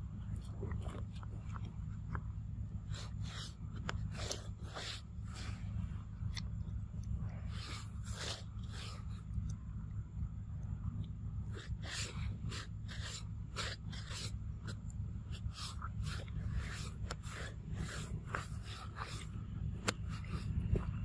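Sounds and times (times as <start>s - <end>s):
low rumble: 0.0s - 21.0s
monkey chewing and smacking: 0.2s - 2.3s.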